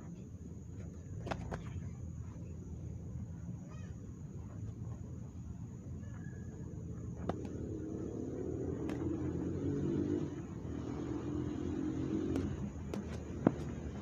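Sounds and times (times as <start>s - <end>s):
gloved punches landing: 1.2s - 1.7s, 7.2s - 7.6s, 8.8s - 9.2s, 12.2s - 14.0s
vehicle engine running: 7.1s - 14.0s.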